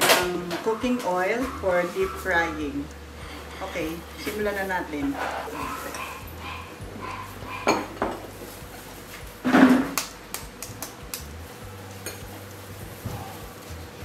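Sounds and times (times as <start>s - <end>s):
metal clinking on glass bowls: 5.2s - 8.3s, 12.0s - 12.3s.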